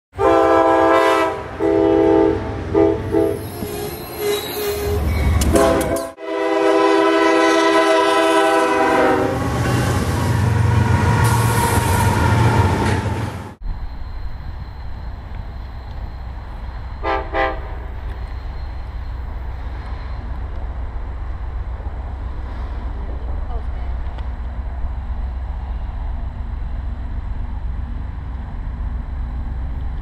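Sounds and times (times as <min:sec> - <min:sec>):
passing train engine and wheels: 0:00.1 - 0:30.0
locomotive horn blasts: 0:00.2 - 0:03.4, 0:05.4 - 0:11.8, 0:17.0 - 0:18.0
quiet trackside ambience: 0:13.6 - 0:30.0.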